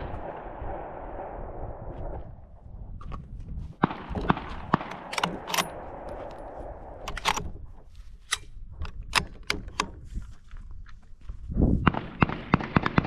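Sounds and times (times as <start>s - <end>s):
rifle bolt metallic clicks: 4.2s - 7.6s, 8.2s - 10.0s.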